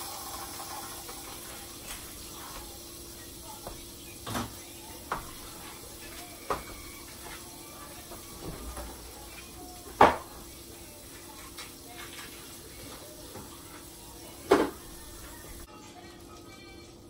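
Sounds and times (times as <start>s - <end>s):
kitchenware clattering: 3.4s - 10.5s, 14.4s - 15.7s.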